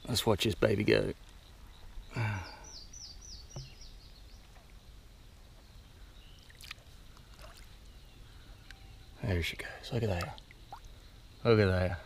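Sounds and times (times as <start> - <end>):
water sloshing: 6.4 - 8.6, 9.9 - 11.2.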